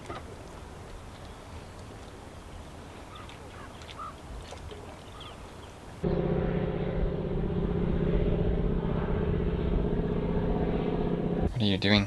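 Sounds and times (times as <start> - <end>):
faint bird calls: 3.0 - 5.8
propeller plane flying overhead: 6.0 - 11.5.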